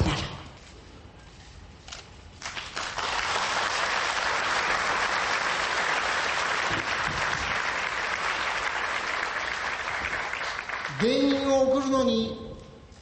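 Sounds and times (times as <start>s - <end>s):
large audience applauding: 2.4s - 11.5s.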